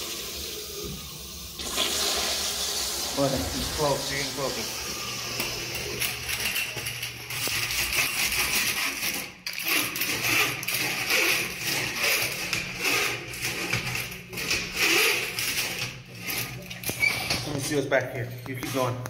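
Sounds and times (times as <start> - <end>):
toilet water churning: 0.0 - 17.9
auger cable rattling and scraping: 5.4 - 19.0.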